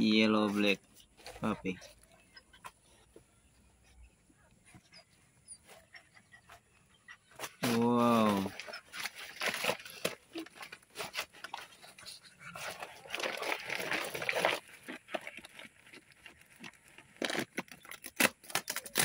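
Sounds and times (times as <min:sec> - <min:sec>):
dog panting: 0:04.7 - 0:07.6
rustling: 0:07.3 - 0:19.0.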